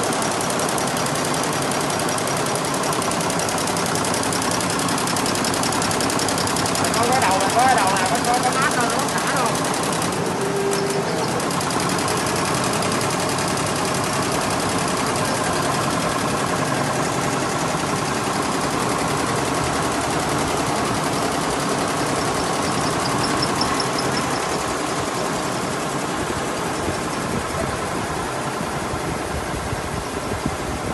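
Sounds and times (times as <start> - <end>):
rattle of needle strokes: 0.0 - 25.6
sewing machines running: 0.0 - 30.9.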